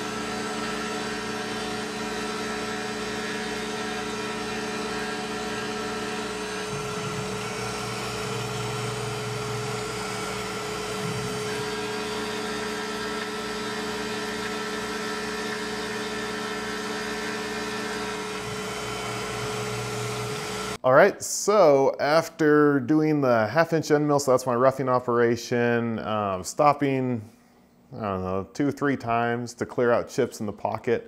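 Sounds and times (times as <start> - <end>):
low machine tone: 0.0 - 20.8
milling machine cutting metal: 0.0 - 20.8
spindle running: 0.0 - 20.8.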